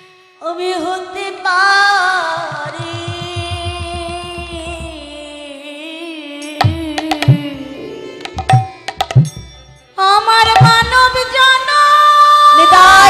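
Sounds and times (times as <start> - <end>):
hand drums playing: 2.3 - 5.3, 6.6 - 9.8, 10.4 - 11.4.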